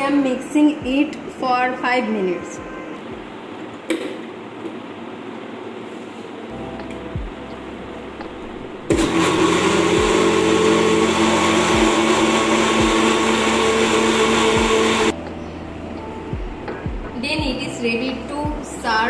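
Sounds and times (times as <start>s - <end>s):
mixer grinder motor running: 8.9s - 15.1s.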